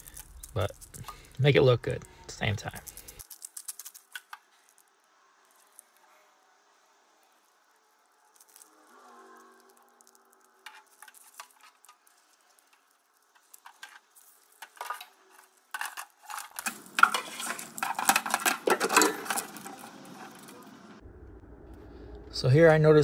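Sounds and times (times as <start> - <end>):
wiring harness clattering and rustling: 9.7 - 20.6.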